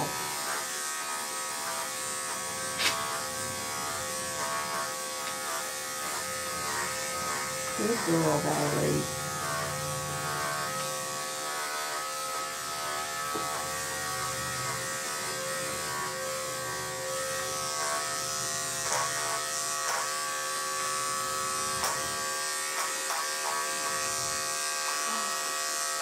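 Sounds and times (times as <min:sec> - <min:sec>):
electric clippers buzzing: 0:00.0 - 0:26.0.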